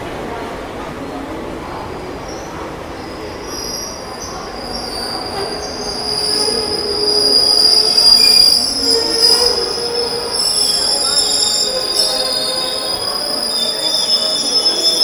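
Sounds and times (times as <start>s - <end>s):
train coaches rolling past: 0.0s - 15.0s
steel wheels screeching on rails: 3.0s - 15.0s.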